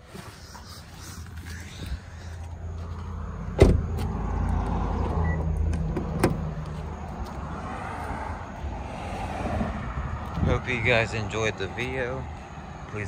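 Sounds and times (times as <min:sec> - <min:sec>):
car door shutting: 0:03.5 - 0:04.1, 0:05.0 - 0:06.5.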